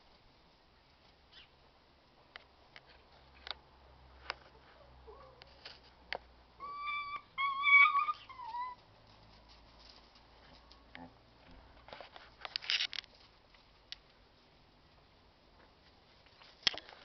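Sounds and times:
puppy whimpering: 6.6 - 8.8.

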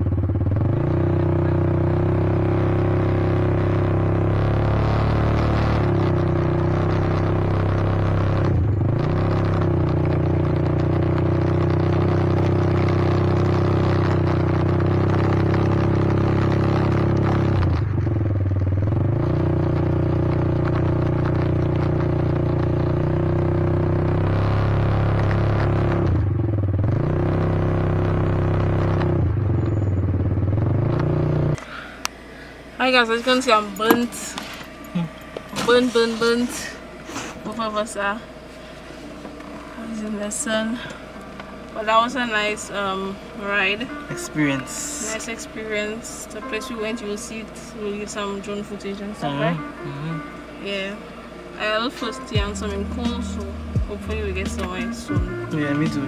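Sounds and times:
vehicle engine running: 0.0 - 56.0.

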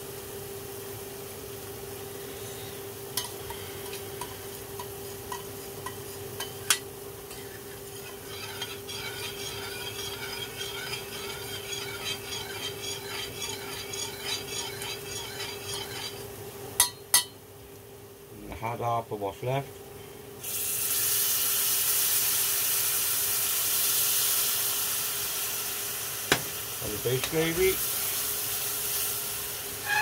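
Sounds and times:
steady hum: 0.9 - 18.4
metal spoon scraping saucepan: 3.2 - 16.3.

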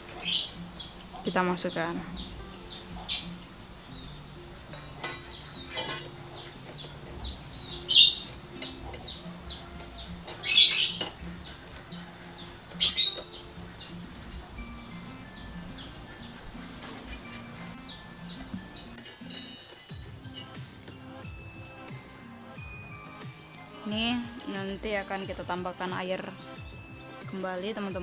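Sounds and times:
small birds chirping: 0.0 - 28.0
eggs clinking against steel skimmer: 0.1 - 21.9.

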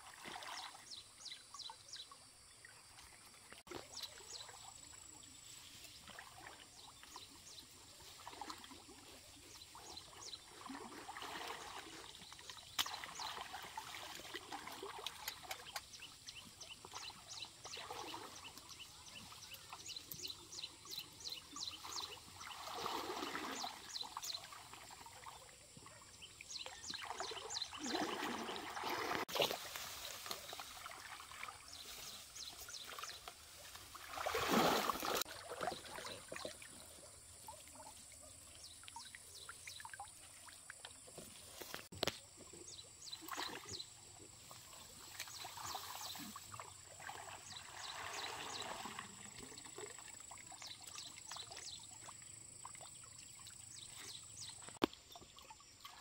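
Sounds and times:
stream water splashing: 0.0 - 56.0.

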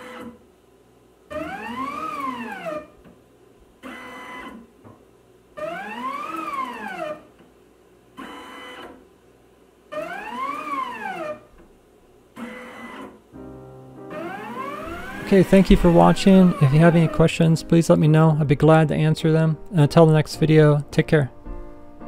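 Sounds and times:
motors whining: 14.1 - 17.5.

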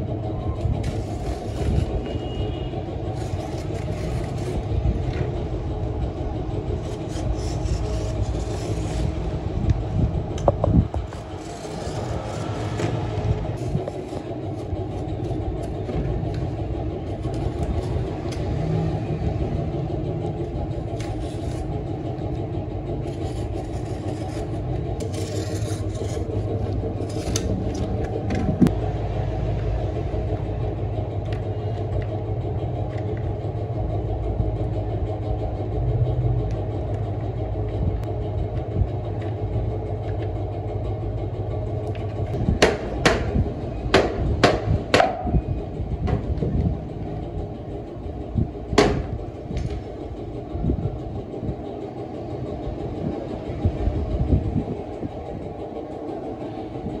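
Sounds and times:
steady low rumble: 0.0 - 57.0
fiberglass scraping and crackling: 0.3 - 18.6, 19.4 - 28.7.

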